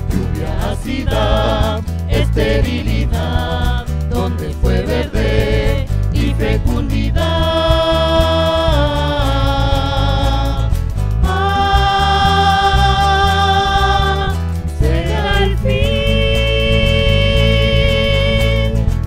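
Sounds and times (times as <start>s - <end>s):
thudding low beat: 0.0s - 19.0s
long held sung notes: 11.3s - 14.4s.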